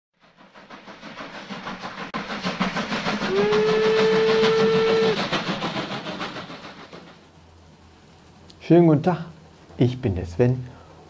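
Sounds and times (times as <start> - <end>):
steam locomotive chuffing: 0.2 - 7.9
train whistle blast: 3.2 - 5.3.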